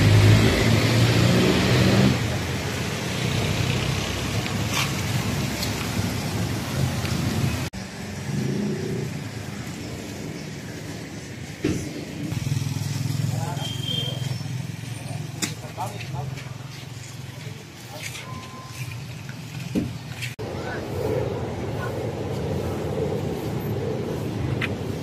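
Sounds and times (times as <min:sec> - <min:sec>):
traffic passing: 0:00.0 - 0:25.0.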